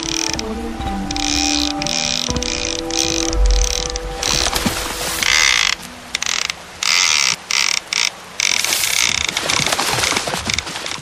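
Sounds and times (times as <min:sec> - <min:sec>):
fishing reel drag buzzing: 0:00.0 - 0:04.5, 0:05.2 - 0:09.1.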